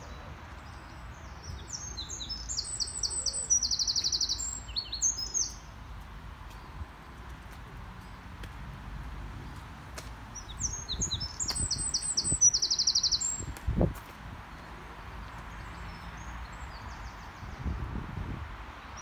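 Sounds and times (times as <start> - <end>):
songbird singing a trill: 0.0 - 5.8, 10.3 - 13.5.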